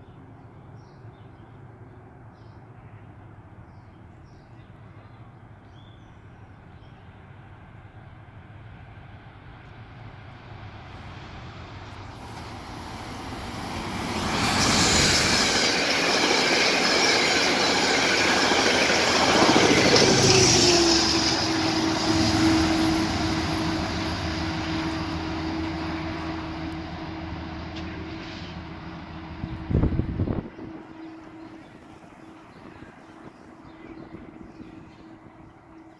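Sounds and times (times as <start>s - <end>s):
locomotive hum: 7.4s - 35.9s
train wheels rushing on rails: 8.6s - 35.7s.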